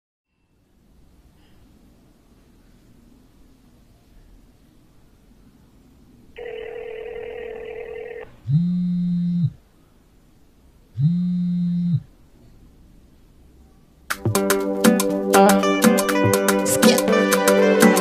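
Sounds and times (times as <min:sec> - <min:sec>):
phone ringback rings: 0:06.4 - 0:09.5
phone buzzing tone: 0:06.4 - 0:09.6, 0:11.0 - 0:12.1.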